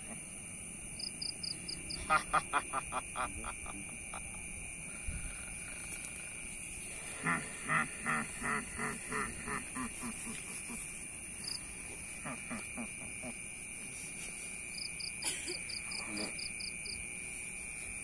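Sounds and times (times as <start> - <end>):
insects trilling: 0.0 - 18.0
duck quacking: 7.1 - 10.4, 12.2 - 13.4.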